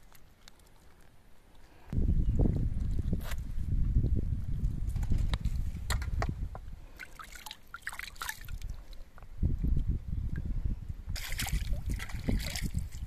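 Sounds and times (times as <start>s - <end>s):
water splashing and dripping: 6.9s - 9.8s, 11.2s - 13.0s.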